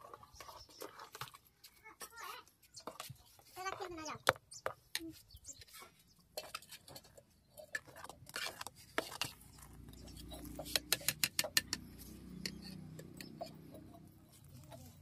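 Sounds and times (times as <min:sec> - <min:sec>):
ladle scraping metal pot: 0:06.3 - 0:15.0.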